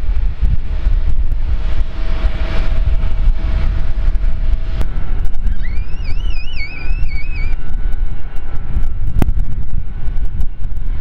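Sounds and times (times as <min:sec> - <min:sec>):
low rumble: 0:00.0 - 0:11.0
wind buffeting microphone: 0:00.0 - 0:11.0
high warbling tone: 0:05.4 - 0:07.7.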